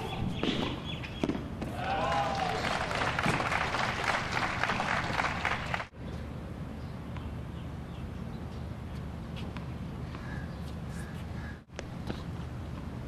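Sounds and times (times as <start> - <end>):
racquet striking tennis ball: 0.3 - 1.8
crowd applause: 1.8 - 5.9.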